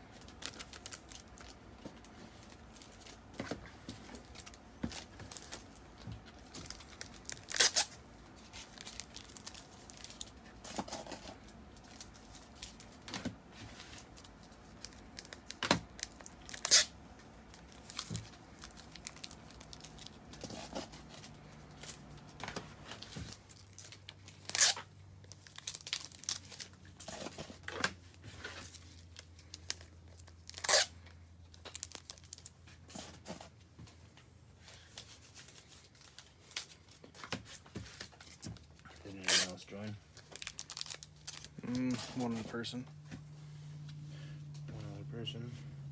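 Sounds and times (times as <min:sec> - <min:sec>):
paper or plastic crinkling: 0:00.0 - 0:33.6, 0:34.6 - 0:42.8
faint low hum: 0:37.8 - 0:45.9.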